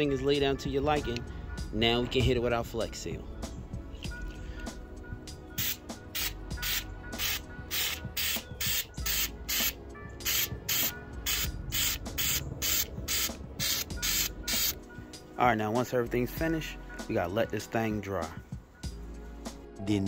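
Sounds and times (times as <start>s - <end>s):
faint background music: 0.0s - 20.0s
aerosol can spraying hisses: 5.6s - 14.8s.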